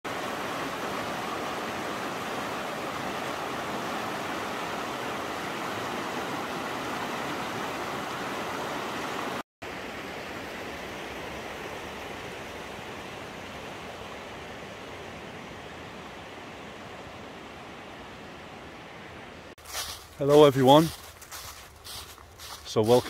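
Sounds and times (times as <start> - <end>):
stream rushing over rocks: 0.1 - 21.5.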